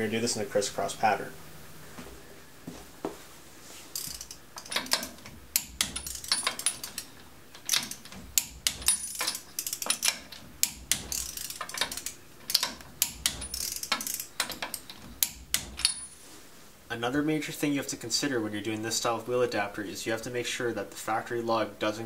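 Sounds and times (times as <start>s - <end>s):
socket ratchet clicking: 4.0s - 16.0s.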